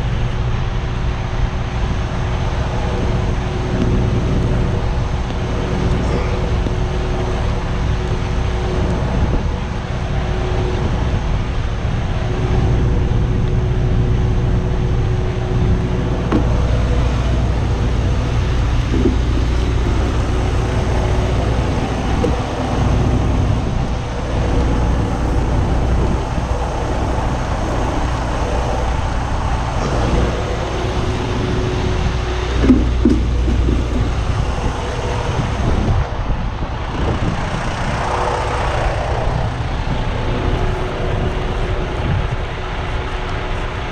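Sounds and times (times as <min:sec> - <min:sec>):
diesel engine idling: 0:00.0 - 0:43.9.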